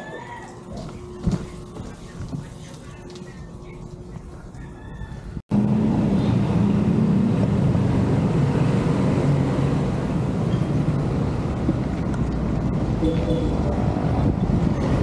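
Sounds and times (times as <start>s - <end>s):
road traffic noise: 2.2s - 15.0s
engine hum: 5.2s - 15.0s.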